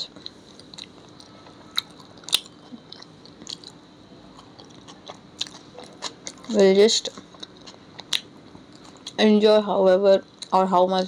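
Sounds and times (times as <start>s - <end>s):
person chewing food: 0.2s - 6.5s, 7.1s - 9.2s.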